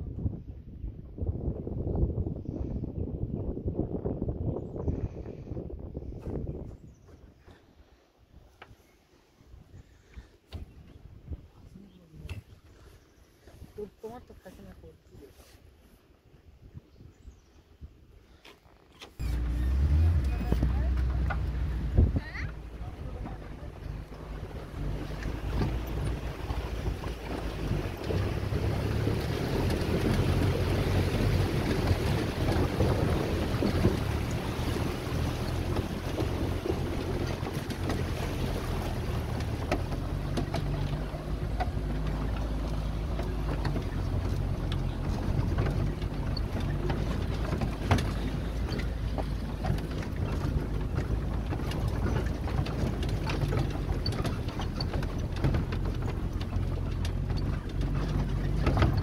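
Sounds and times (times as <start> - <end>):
wind buffeting microphone: 0.0 - 8.8, 9.4 - 15.2, 19.2 - 59.0
vehicle engine running: 19.2 - 59.0
knocks and rattles: 19.3 - 59.0.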